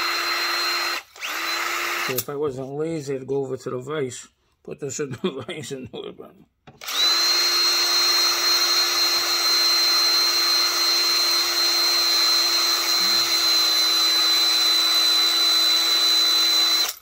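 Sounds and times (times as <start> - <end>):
cordless drill whine: 0.0 - 2.2, 6.8 - 17.0.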